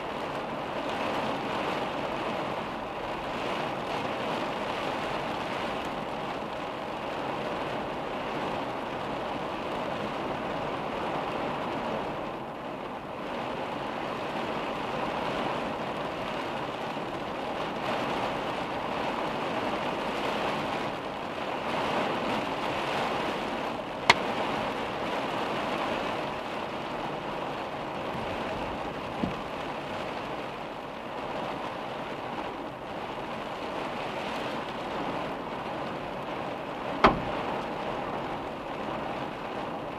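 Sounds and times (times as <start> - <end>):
heavy rain on car windshield: 0.0 - 39.9
sharp knock: 37.0 - 37.3.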